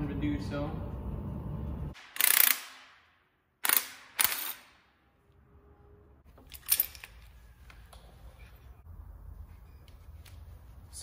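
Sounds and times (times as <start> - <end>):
impact wrench hammering: 2.0 - 4.7.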